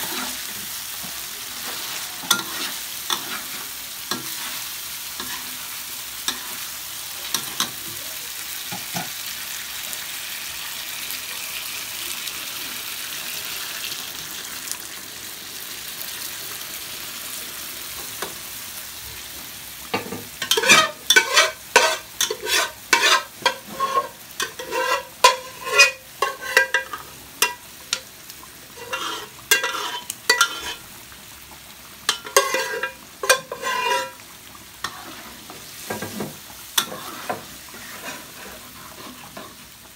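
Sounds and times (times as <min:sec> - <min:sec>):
metal spatula scraping wok: 0:00.0 - 0:00.8, 0:01.6 - 0:06.7, 0:20.4 - 0:27.6, 0:28.7 - 0:30.9, 0:32.1 - 0:34.2, 0:34.8 - 0:39.6
sauce sizzling and bubbling in wok: 0:00.0 - 0:39.9.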